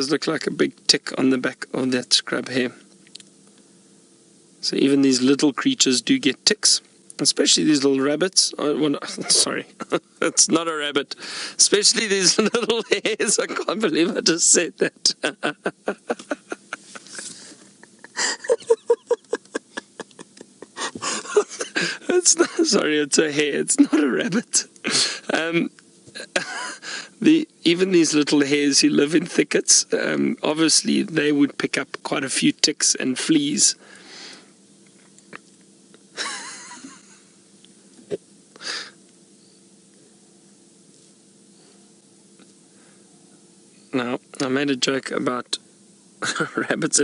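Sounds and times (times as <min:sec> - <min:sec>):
faint steady hum: 0:00.0 - 0:47.0
man laughing: 0:09.0 - 0:10.5, 0:11.8 - 0:27.1, 0:36.2 - 0:37.3, 0:46.2 - 0:46.8
gasping in-breaths: 0:11.2 - 0:11.6
person wheezy breathing: 0:11.2 - 0:11.6, 0:17.0 - 0:18.6, 0:20.8 - 0:22.1, 0:24.8 - 0:25.3, 0:26.8 - 0:27.2, 0:33.8 - 0:34.6, 0:38.6 - 0:39.0.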